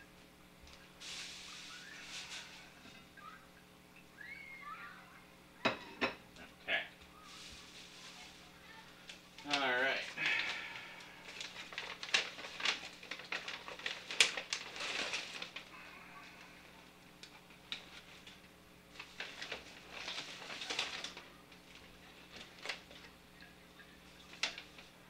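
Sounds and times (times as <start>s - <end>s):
paper bag rustling: 1.0s - 2.9s, 7.2s - 16.5s, 17.4s - 23.2s.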